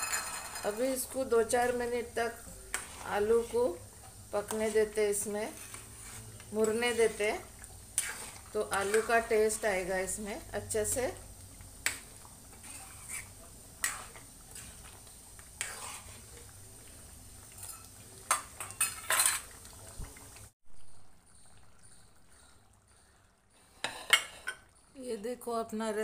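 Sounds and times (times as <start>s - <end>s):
steel spoon scraping a pan: 0.0s - 11.2s, 11.8s - 16.5s, 17.5s - 19.5s, 23.6s - 24.7s.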